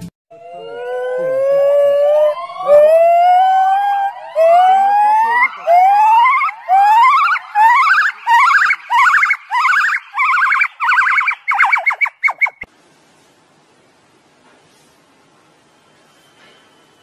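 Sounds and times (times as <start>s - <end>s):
gibbon whooping calls: 0.6s - 12.7s.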